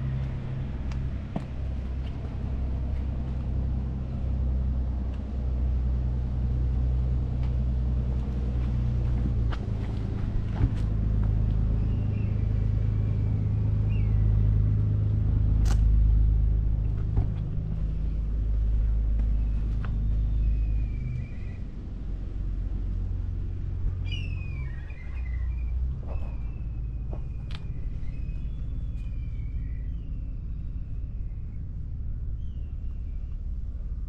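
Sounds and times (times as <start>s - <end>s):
low engine hum: 0.0s - 34.0s
bird chirps: 24.0s - 31.6s, 32.4s - 33.4s.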